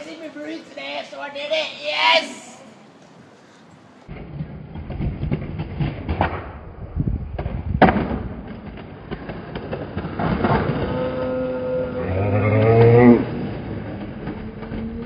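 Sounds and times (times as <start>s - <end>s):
skateboard wheels rolling on stone: 4.1s - 11.6s, 12.6s - 15.0s.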